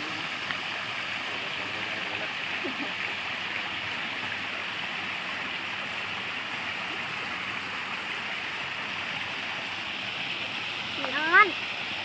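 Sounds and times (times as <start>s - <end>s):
waterfall splashing into a pond: 0.0s - 12.0s.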